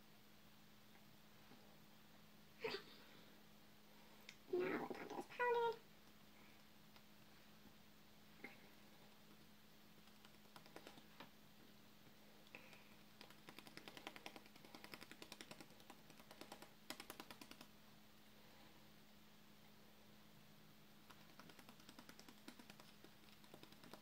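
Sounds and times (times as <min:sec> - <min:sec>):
low steady hum: 0:00.0 - 0:24.0
rapid faint tapping: 0:10.0 - 0:11.3, 0:12.5 - 0:17.7, 0:21.1 - 0:24.0.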